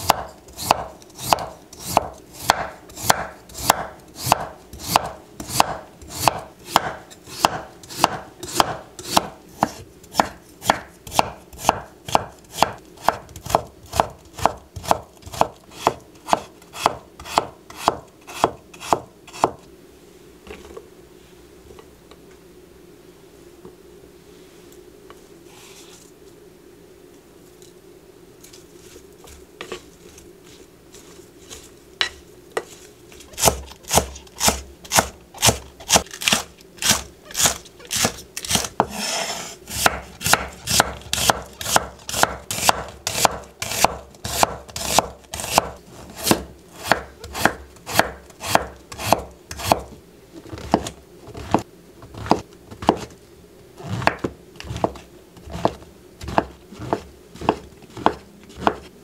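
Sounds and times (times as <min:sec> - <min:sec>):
cleaver chopping on wooden board: 0:00.0 - 0:19.6, 0:39.8 - 0:49.9, 0:50.6 - 0:53.1, 0:54.0 - 0:58.9.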